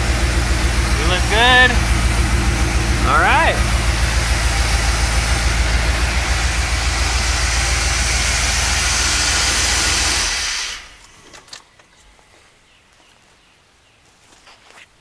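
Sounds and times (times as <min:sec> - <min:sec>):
car engine idling: 0:00.0 - 0:11.2.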